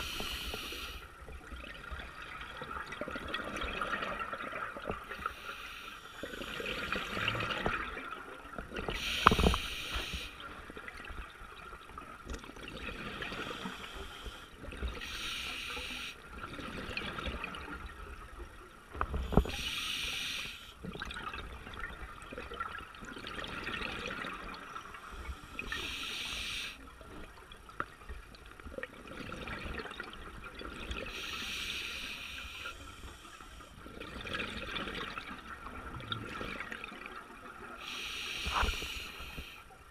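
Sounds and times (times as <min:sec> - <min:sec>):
regulator hissing inhale: 0:00.0 - 0:01.1, 0:05.2 - 0:07.3, 0:08.9 - 0:10.4, 0:13.3 - 0:16.2, 0:19.2 - 0:20.8, 0:25.1 - 0:26.8, 0:31.1 - 0:33.8, 0:37.8 - 0:39.7.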